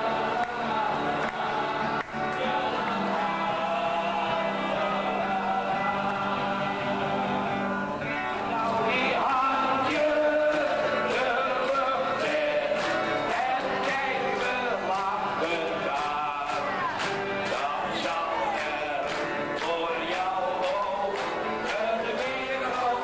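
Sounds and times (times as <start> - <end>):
voices singing with accompaniment: 0.0 - 23.0.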